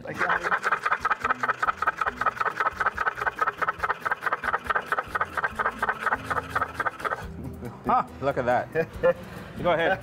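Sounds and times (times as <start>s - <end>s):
hand-cranked grinder clattering: 0.0s - 7.3s.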